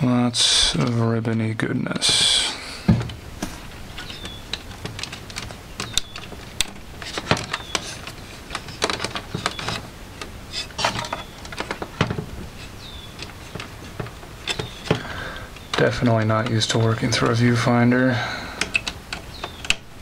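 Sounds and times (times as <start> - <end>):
hands handling cassette mechanism: 3.0 - 20.0.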